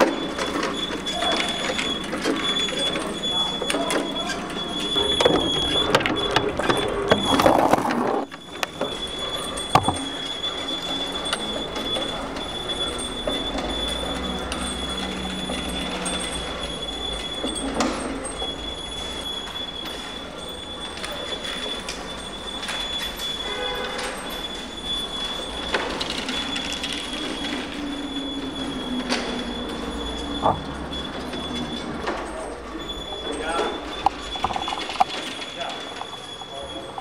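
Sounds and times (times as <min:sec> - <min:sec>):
metal grinding and scraping: 0:04.9 - 0:10.2, 0:33.3 - 0:37.0
steady high-pitched squeal: 0:24.2 - 0:37.0.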